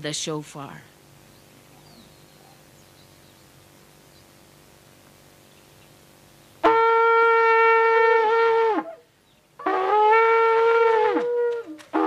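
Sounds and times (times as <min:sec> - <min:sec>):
shofar blasts: 0:06.6 - 0:12.0.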